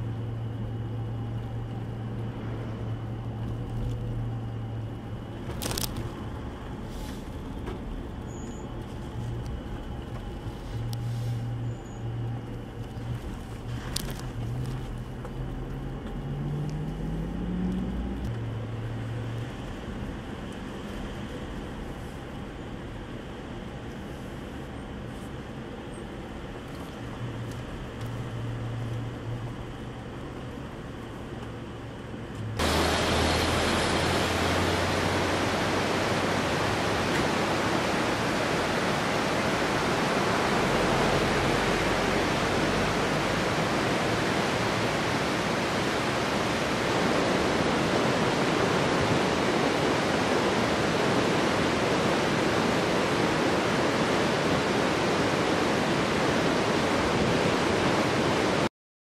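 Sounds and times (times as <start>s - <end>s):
low hum: 0.0s - 58.6s
running water rushing: 32.6s - 58.7s.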